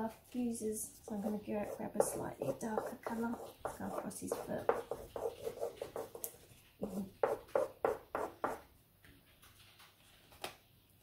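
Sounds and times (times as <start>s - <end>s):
oil pastel scraping on paper: 1.1s - 8.6s.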